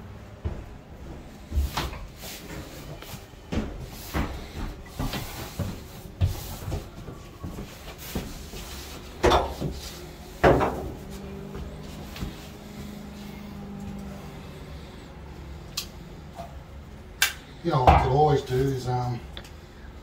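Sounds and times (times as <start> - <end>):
knocks and clunks: 9.2 - 12.4.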